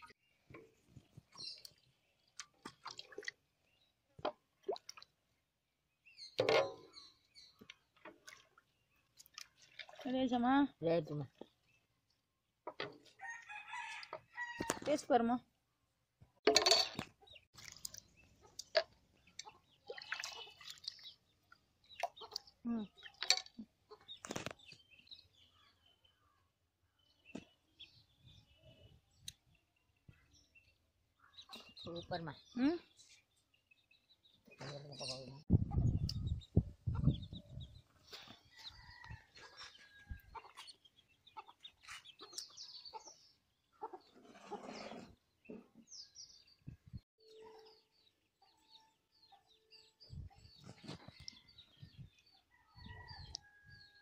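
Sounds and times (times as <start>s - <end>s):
wet sloshing and plopping: 2.3s - 3.5s, 4.3s - 5.2s, 7.6s - 10.1s, 17.5s - 21.2s.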